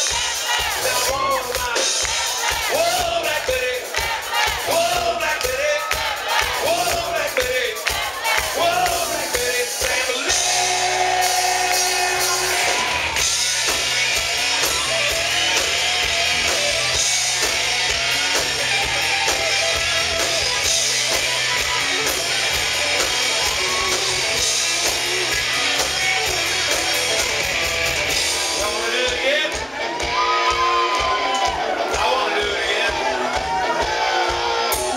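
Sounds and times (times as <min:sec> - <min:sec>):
person singing: 0:00.0 - 0:13.2, 0:28.4 - 0:34.9
rock band playing: 0:00.0 - 0:34.9.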